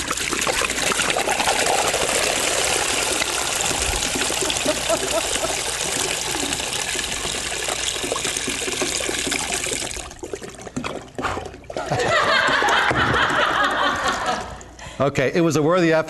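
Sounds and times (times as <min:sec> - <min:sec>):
water chugging with air bubbles: 0:00.0 - 0:14.8
water pouring into plastic tubs: 0:00.0 - 0:14.8
loud laughter: 0:04.6 - 0:05.7, 0:11.8 - 0:14.6.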